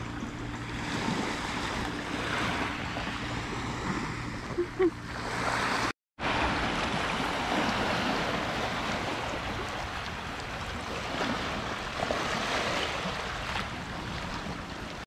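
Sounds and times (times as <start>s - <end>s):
sea waves washing onto beach: 5.2s - 15.0s.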